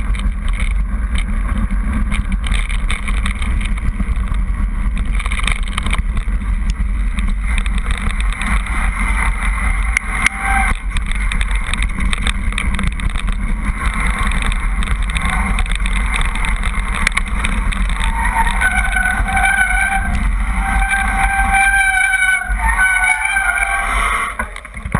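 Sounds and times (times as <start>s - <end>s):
bike clattering over stones: 0.0s - 22.1s
wind buffeting microphone: 0.0s - 24.9s
bike brakes squealing: 9.7s - 10.8s, 15.2s - 15.7s, 18.0s - 24.7s.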